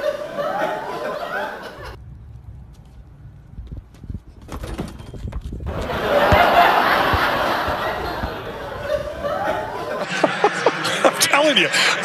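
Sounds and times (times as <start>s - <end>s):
laughter: 0.0s - 2.0s, 5.7s - 12.0s.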